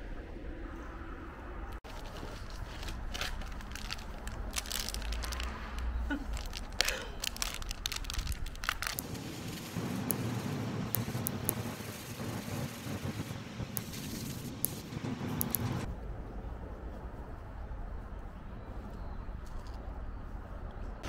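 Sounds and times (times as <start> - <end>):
plastic bag crinkling: 1.9 - 9.5
torch lighter flame hissing: 8.9 - 15.9.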